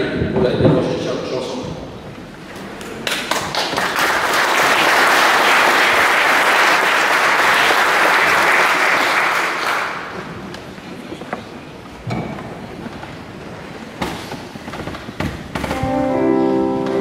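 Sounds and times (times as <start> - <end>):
audience applauding: 3.0 - 10.5.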